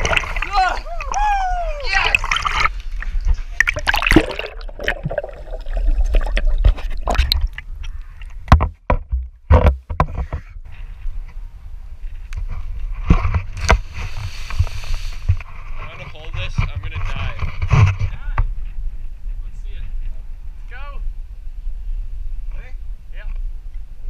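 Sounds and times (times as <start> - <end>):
water sloshing and splashing: 0.0 - 9.8.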